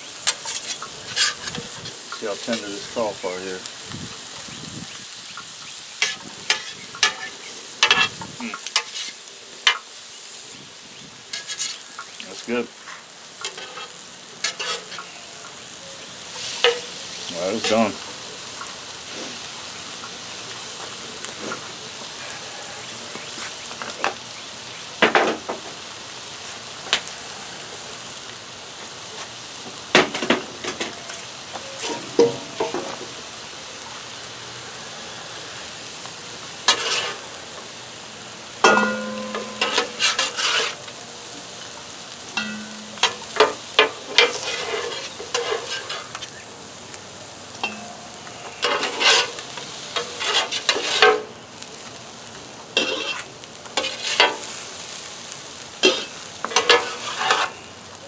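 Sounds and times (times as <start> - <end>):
rice sizzling on a griddle: 0.0 - 58.0
metal spatulas scraping and clinking: 0.2 - 1.6, 6.0 - 8.2, 8.8 - 9.8, 11.3 - 11.8, 13.4 - 15.1, 36.7 - 37.2, 38.6 - 40.8, 42.4 - 46.3, 47.6 - 48.0, 48.6 - 51.2, 52.8 - 54.4, 55.8 - 57.6.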